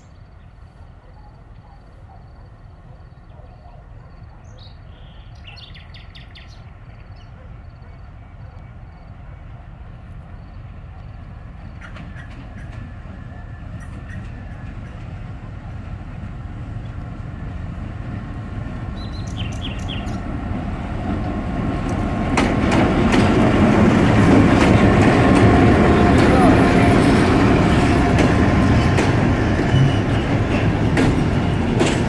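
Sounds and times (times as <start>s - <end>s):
diesel locomotive rumbling: 4.8s - 32.0s
wheels clicking over rail joints: 21.1s - 32.0s.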